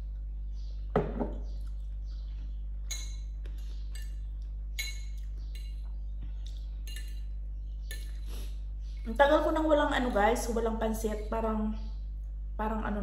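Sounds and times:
steady low hum: 0.0 - 13.0
cutlery clinking on a plate: 6.9 - 7.3, 7.9 - 8.3.

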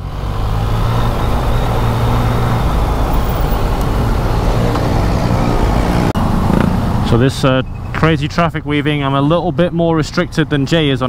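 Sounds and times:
motorcycle engine running: 0.0 - 8.1
wind noise: 0.0 - 8.2.

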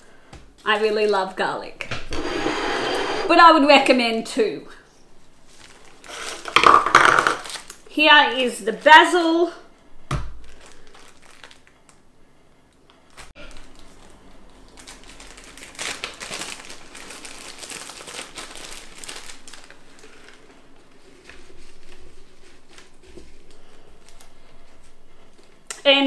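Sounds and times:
plastic bag crinkling: 5.4 - 7.9, 10.3 - 12.0, 13.1 - 25.7
leaves rustling: 13.5 - 24.9.

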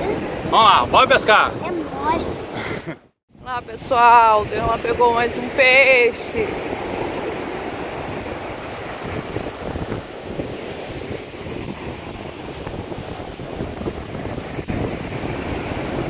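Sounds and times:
wind buffeting microphone: 0.0 - 16.0
surf breaking on beach: 4.0 - 16.0.

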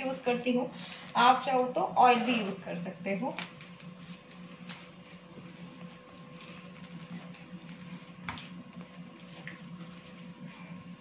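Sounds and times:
dough kneading squishing: 0.0 - 11.0
steady hum: 0.0 - 11.0.

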